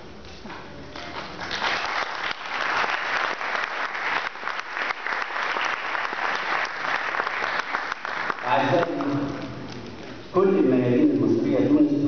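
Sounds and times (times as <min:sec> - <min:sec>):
audience applauding: 0:01.0 - 0:09.4.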